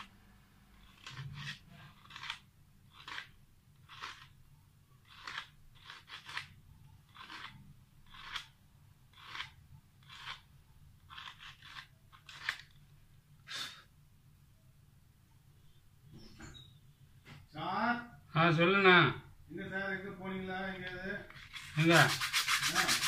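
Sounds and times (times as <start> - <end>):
sandpaper rasping on metal: 0.8 - 3.3, 7.2 - 8.4, 21.4 - 23.0.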